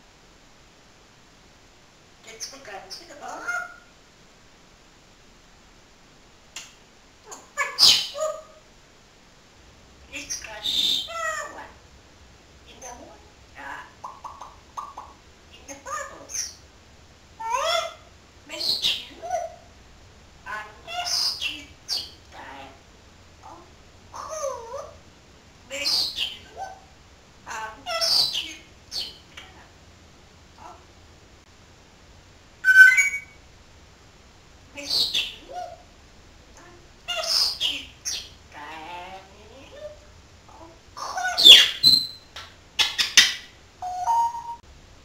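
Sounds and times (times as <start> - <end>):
parrot calling: 2.3 - 3.9, 7.2 - 8.6, 10.1 - 11.8, 12.7 - 16.6, 17.4 - 19.7, 20.4 - 22.8, 23.4 - 25.0, 25.7 - 29.6, 32.6 - 33.4, 34.8 - 35.9, 36.6 - 44.6
parrot whistle: 32.6 - 33.4, 41.4 - 44.6.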